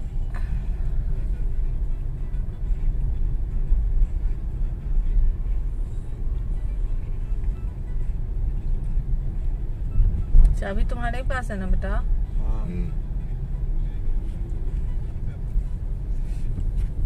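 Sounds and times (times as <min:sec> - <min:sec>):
car engine and tyre noise: 0:00.0 - 0:17.0.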